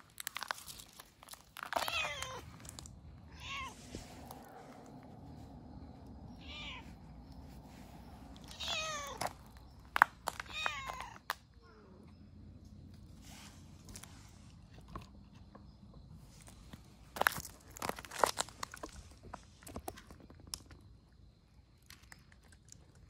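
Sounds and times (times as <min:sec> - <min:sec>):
cats meowing: 0:01.6 - 0:05.0, 0:06.2 - 0:07.5, 0:08.2 - 0:12.2.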